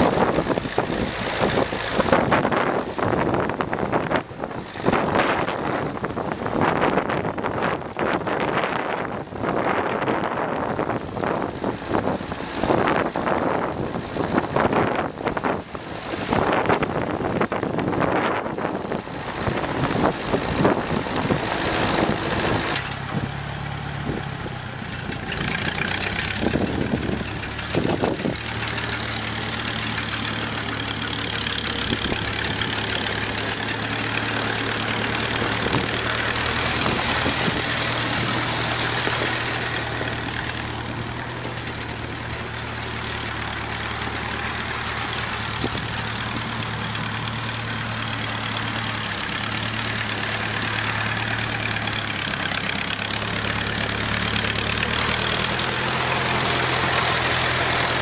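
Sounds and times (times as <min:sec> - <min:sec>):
wind buffeting microphone: 0:00.0 - 0:23.4, 0:24.0 - 0:29.2, 0:30.0 - 0:43.2
tractor engine running: 0:00.0 - 0:58.0.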